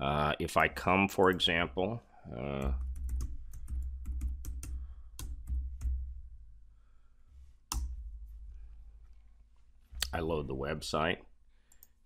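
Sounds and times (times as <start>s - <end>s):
low steady hum: 2.1s - 11.7s
typing on computer keyboard: 2.6s - 6.0s.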